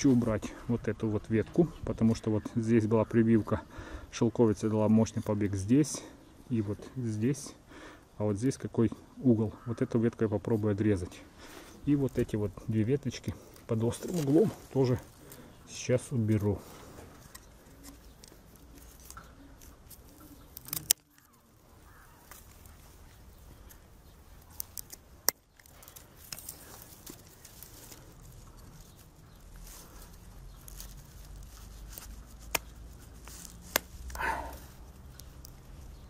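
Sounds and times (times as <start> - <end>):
secateurs snipping shoots: 19.9 - 21.3, 31.7 - 34.2.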